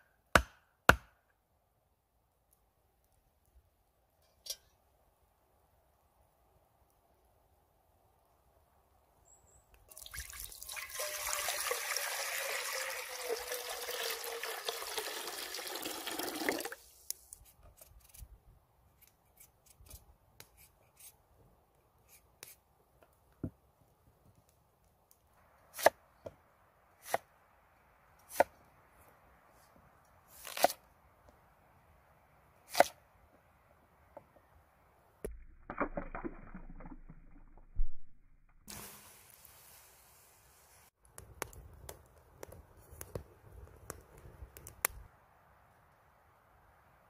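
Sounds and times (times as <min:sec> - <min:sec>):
water pouring into a pot: 0:09.9 - 0:16.8.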